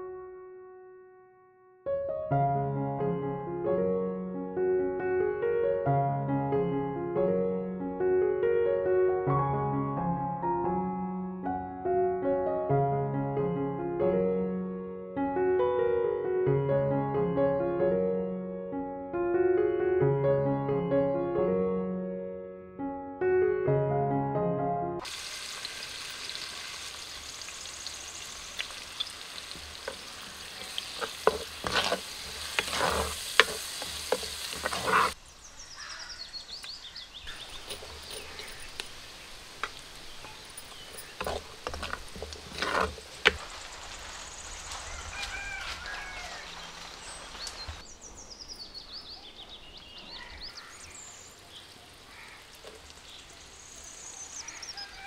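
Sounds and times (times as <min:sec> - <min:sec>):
oil sizzling in a clay pot: 0:25.0 - 0:35.7, 0:36.4 - 0:47.8, 0:50.5 - 0:55.0
birds chirping faintly: 0:27.1 - 0:55.0
ladle knocking and scraping pot: 0:29.8 - 0:35.2, 0:40.4 - 0:43.4.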